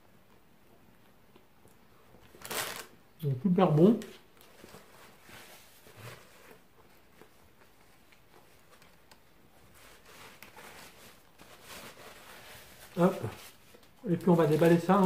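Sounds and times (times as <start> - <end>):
faint chewing: 0.2 - 2.4
paper napkins rustling: 2.3 - 2.9, 3.8 - 15.0.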